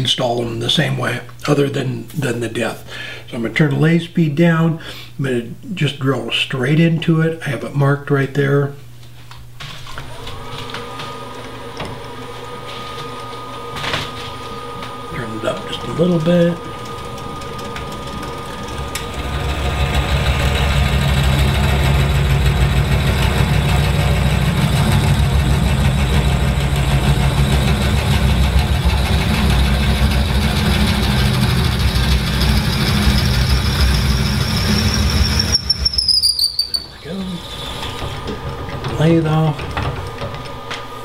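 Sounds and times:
wood lathe spinning: 10.1s - 41.0s
drill bit cutting wood: 18.0s - 38.2s
high whine dropping in pitch: 18.0s - 38.4s.

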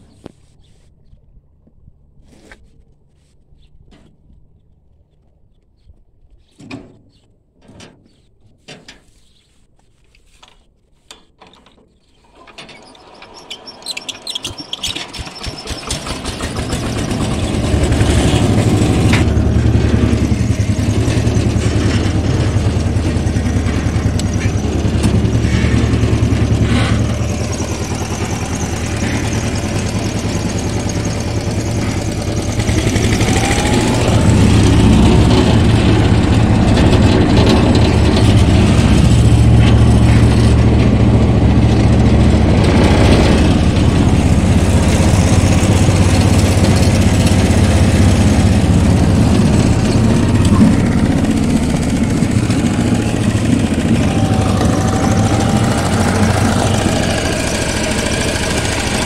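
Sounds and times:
power tiller engine starting: 12.2s - 59.0s.

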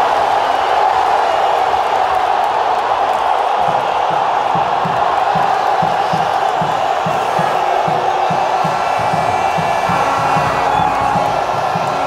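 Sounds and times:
stadium crowd cheering: 0.0s - 12.0s
low regular beat: 5.8s - 12.0s.

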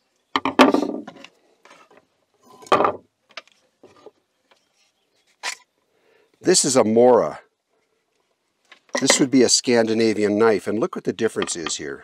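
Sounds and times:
knife clattering on wooden table: 8.9s - 9.3s, 11.4s - 11.8s.

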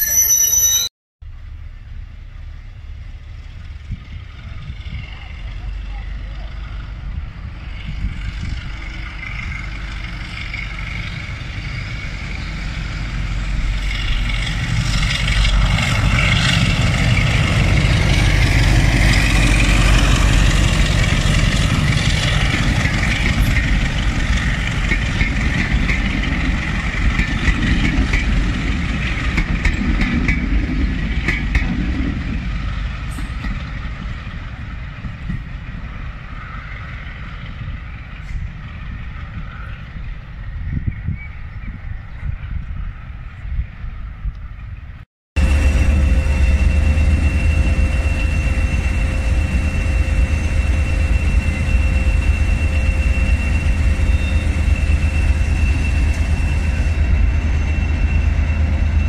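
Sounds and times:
diesel locomotive engine passing: 1.2s - 59.0s.

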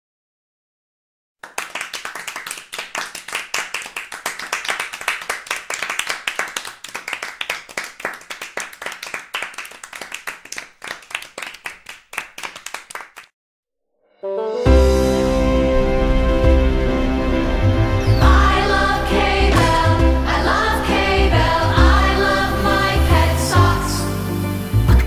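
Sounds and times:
people clapping: 1.4s - 13.3s, 19.4s - 23.3s
music: 14.1s - 25.0s.

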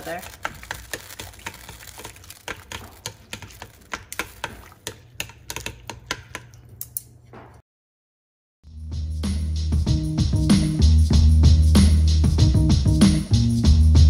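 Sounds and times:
chopsticks tapping a steel pot: 0.1s - 6.6s
music: 8.6s - 14.0s.

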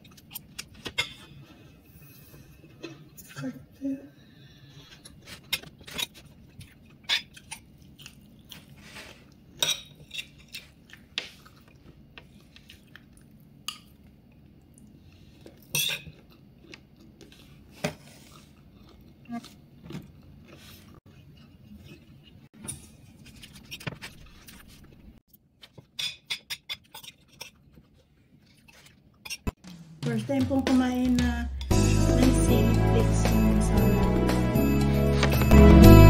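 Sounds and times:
chewing: 4.7s - 22.5s.

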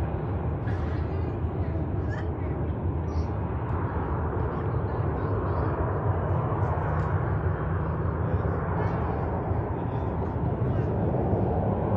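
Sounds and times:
distant jet engines rumbling: 0.0s - 11.9s.

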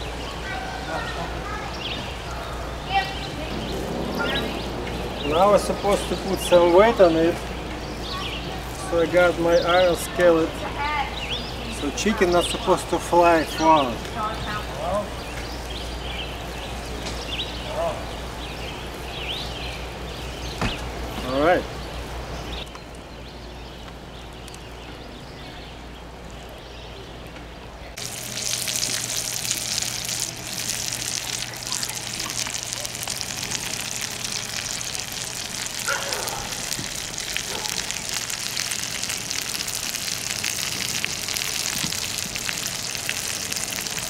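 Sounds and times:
chicken sizzling on griddle: 28.0s - 44.0s.

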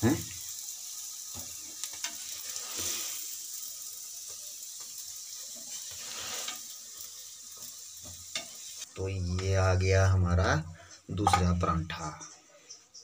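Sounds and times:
flatbread sizzling on griddle: 0.0s - 11.0s
metal tongs clicking on pan: 8.3s - 8.6s.

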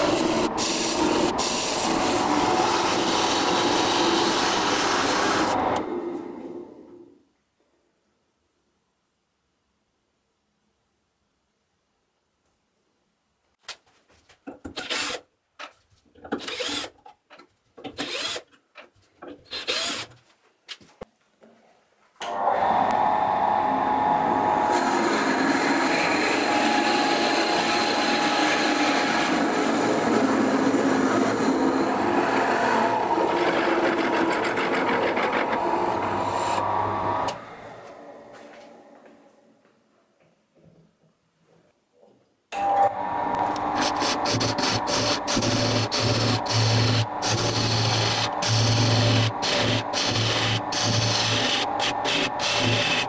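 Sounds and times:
cordless drill driving screws: 14.7s - 15.2s, 16.3s - 17.0s, 17.8s - 18.6s, 19.5s - 20.2s, 43.4s - 53.0s
drill bit boring into spinning wood: 14.8s - 15.2s, 16.4s - 16.9s, 18.0s - 18.5s, 19.5s - 20.1s, 43.4s - 53.0s.

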